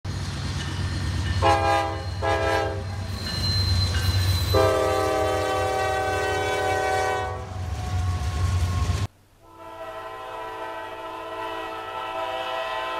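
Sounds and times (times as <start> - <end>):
locomotive horn blasts: 1.4 - 3.0, 4.5 - 12.9.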